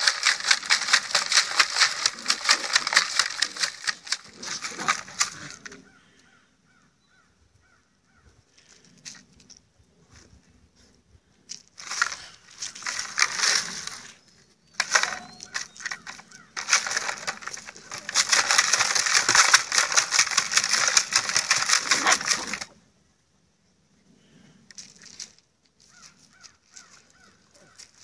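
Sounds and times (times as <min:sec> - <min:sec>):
puppies crunching ice cubes: 0:00.0 - 0:06.1, 0:11.8 - 0:22.8.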